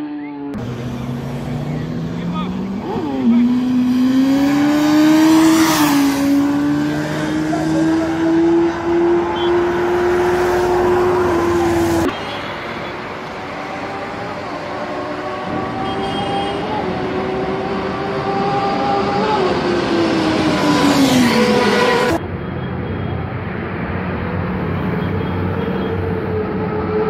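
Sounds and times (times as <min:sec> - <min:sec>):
motorcycle approaching: 0:00.0 - 0:12.1
motorcycle engine revving high: 0:00.4 - 0:12.1.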